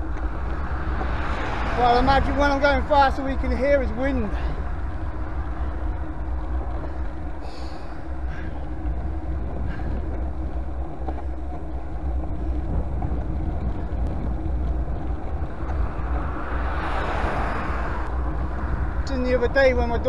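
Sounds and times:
road noise: 0:00.0 - 0:20.0
wind buffeting microphone: 0:00.0 - 0:20.0.

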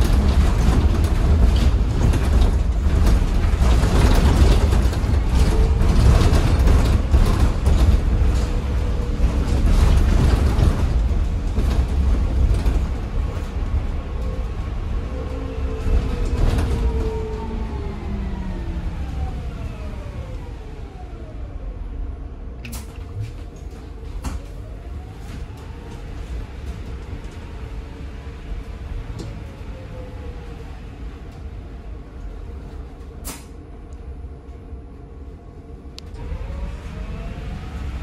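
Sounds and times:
clicks and knocks from bus body: 0:00.0 - 0:14.4, 0:22.6 - 0:24.6
low road rumble: 0:00.0 - 0:38.0.

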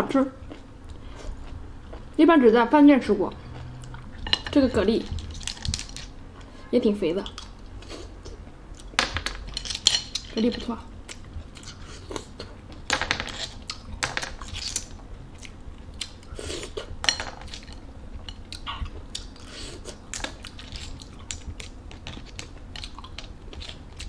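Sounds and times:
chewing: 0:17.5 - 0:24.0.

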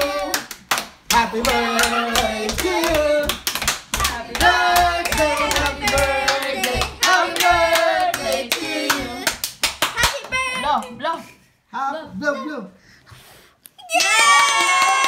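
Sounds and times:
voices singing: 0:00.0 - 0:09.4
hands clapping: 0:00.2 - 0:10.9.

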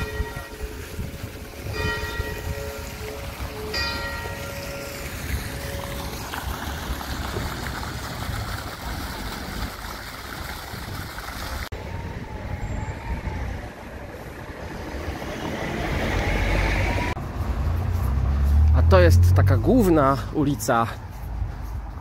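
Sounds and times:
rumble of passing vehicles: 0:00.0 - 0:22.0
vehicle engine: 0:11.3 - 0:22.0.

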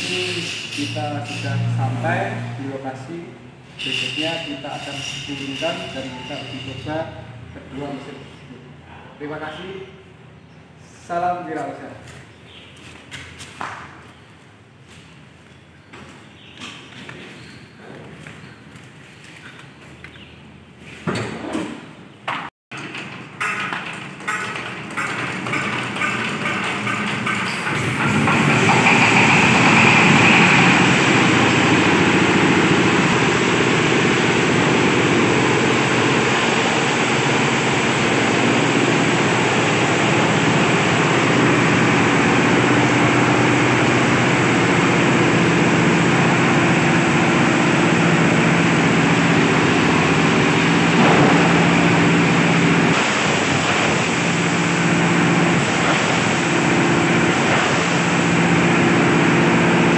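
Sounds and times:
diesel engine running: 0:00.0 - 0:08.6, 0:23.3 - 0:59.9.

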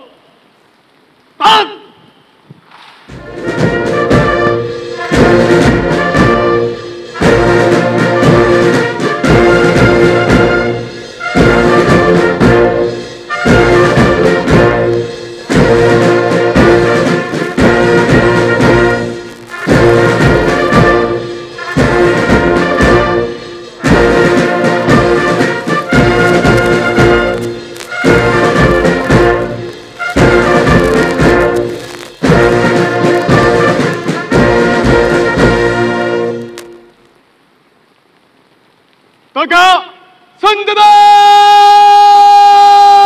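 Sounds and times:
drum beats: 0:02.6 - 0:37.0
military brass band playing: 0:03.1 - 0:37.0.

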